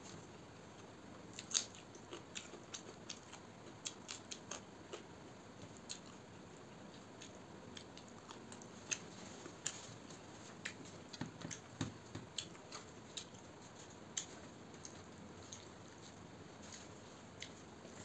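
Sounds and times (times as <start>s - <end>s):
chewing smacks: 1.3s - 6.2s.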